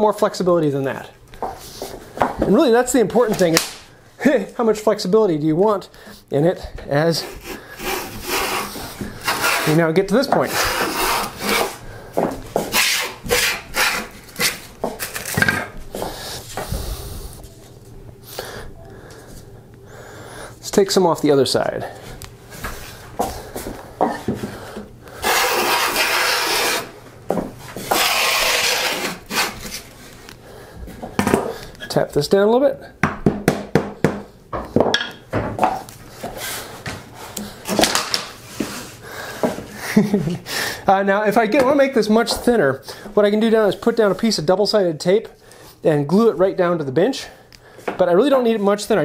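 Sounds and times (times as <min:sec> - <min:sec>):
hand plane shaving wood: 0:07.2 - 0:11.8, 0:12.6 - 0:14.6, 0:25.2 - 0:26.9, 0:27.8 - 0:29.8.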